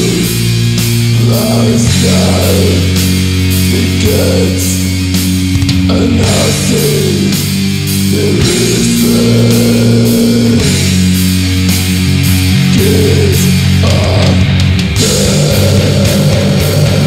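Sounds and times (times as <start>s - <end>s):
distorted guitars: 0.0s - 17.0s
drums with cymbal: 0.0s - 17.0s.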